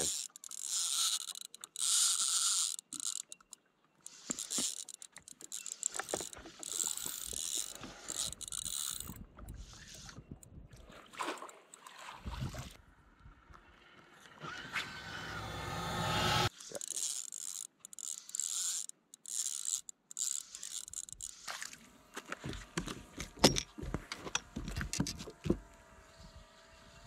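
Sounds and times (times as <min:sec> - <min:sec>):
rising rush of noise: 0:14.7 - 0:16.5.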